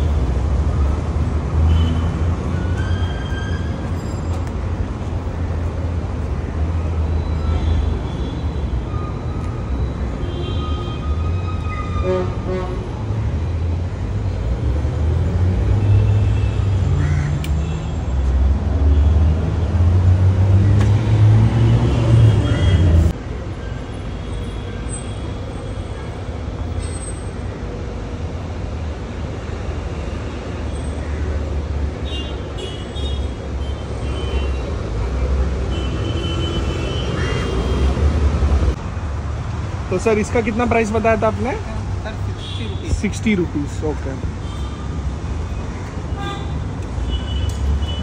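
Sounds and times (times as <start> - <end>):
road traffic rumble: 0.0 - 48.0
vehicle horns tooting: 10.2 - 12.9.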